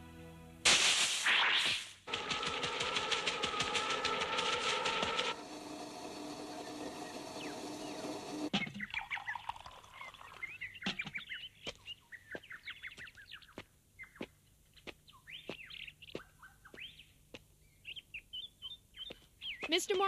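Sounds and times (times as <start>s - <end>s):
sharp clicks: 2.1s - 5.4s
small birds chirping: 6.0s - 20.0s.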